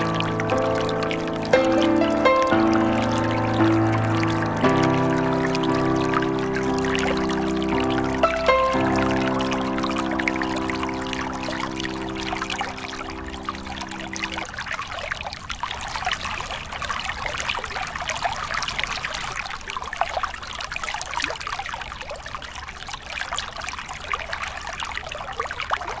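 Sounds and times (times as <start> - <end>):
held music chord: 0.0 - 14.4
water trickling: 0.0 - 26.0.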